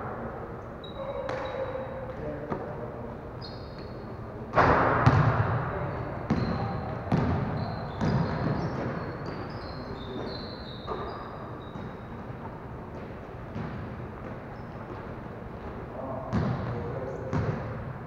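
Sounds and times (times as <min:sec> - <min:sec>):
sneakers squeaking: 0:00.7 - 0:18.0
basketball banging against basket: 0:04.5 - 0:05.6, 0:06.3 - 0:09.4
ball bouncing on hardwood floor: 0:04.6 - 0:05.4.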